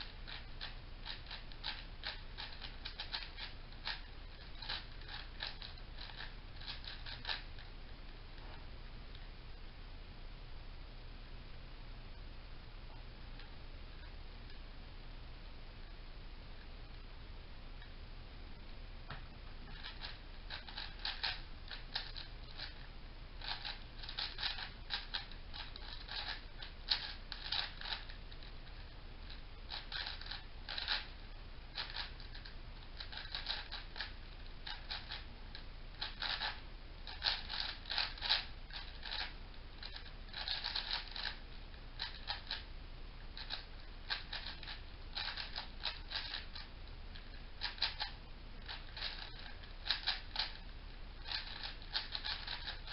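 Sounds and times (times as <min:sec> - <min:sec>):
plastic puzzle cube clacking: 0:00.0 - 0:07.7, 0:19.7 - 0:22.8, 0:23.4 - 0:28.6, 0:29.3 - 0:31.1, 0:31.8 - 0:35.3, 0:36.0 - 0:41.4, 0:42.0 - 0:42.7, 0:43.4 - 0:50.6, 0:51.2 - 0:52.9.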